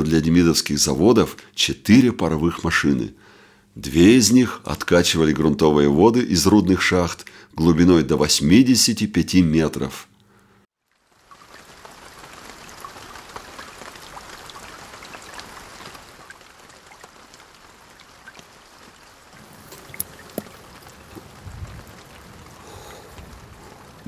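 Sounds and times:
steady rain falling: 10.8 - 24.0.

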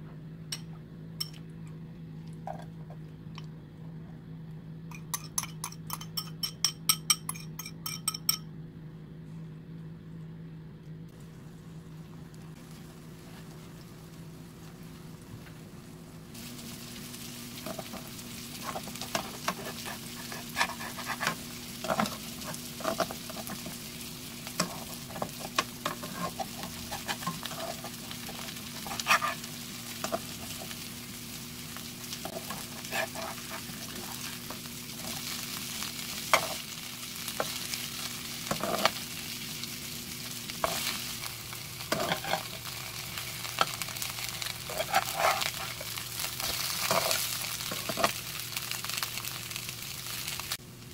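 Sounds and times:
steady low hum: 0.0 - 50.9
corn sizzling in oil: 11.1 - 50.9
metal spatula scraping a pan: 18.6 - 23.8, 24.6 - 30.7, 32.2 - 34.3, 38.5 - 39.0, 41.9 - 42.7, 44.4 - 48.1.

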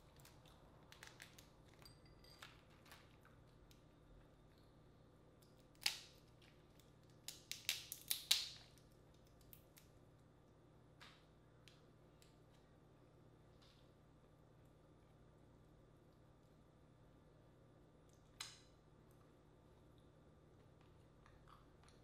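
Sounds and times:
crawfish shells cracking: 5.6 - 9.9.

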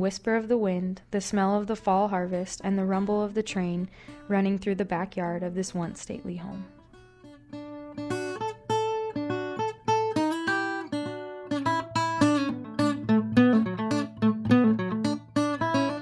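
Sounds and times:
plucked guitar notes: 6.2 - 16.0.

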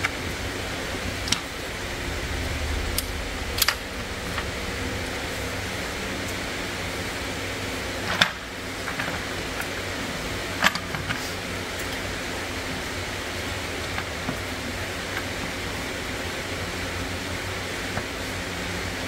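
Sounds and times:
fan-like hiss: 0.0 - 19.0.

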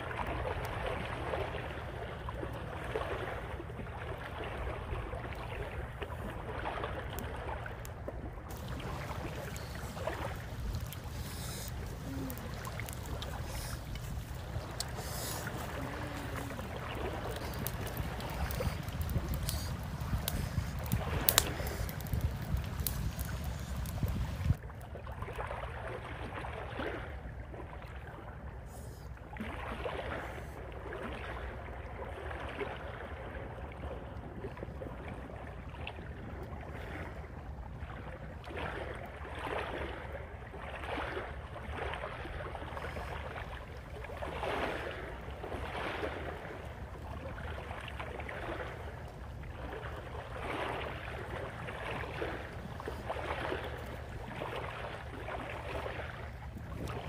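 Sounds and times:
waves washing on rocky shore: 8.5 - 24.6.

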